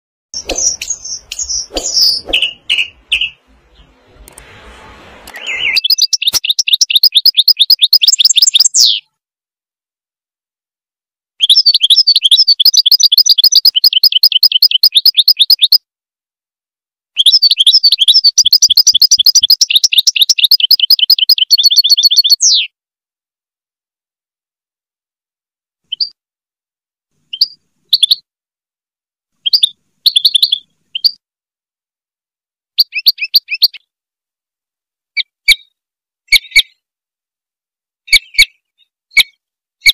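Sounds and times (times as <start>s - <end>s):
songbird high trilling: 0.4s - 3.4s, 5.3s - 9.0s
songbird chirps: 0.4s - 4.5s, 5.2s - 9.2s, 11.4s - 15.8s, 17.2s - 22.8s, 27.2s - 28.3s, 29.4s - 31.2s, 32.7s - 33.9s, 38.0s - 39.9s.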